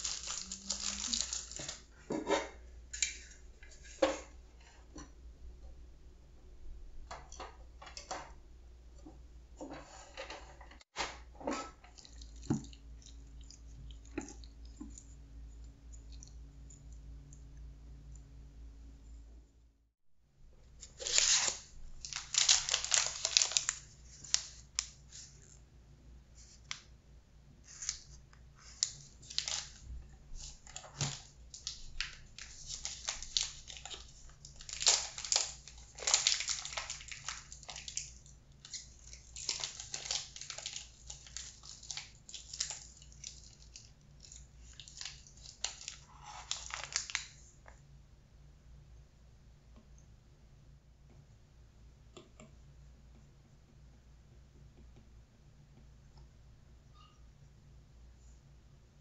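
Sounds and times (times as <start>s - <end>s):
plastic bag crinkling: 0.0s - 1.9s, 20.8s - 25.6s, 28.7s - 47.5s.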